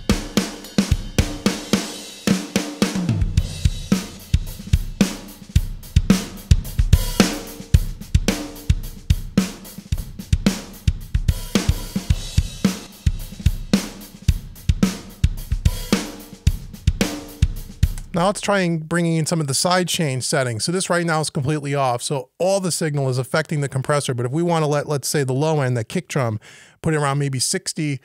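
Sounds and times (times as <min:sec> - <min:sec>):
drum kit playing a steady beat: 0:00.0 - 0:18.5.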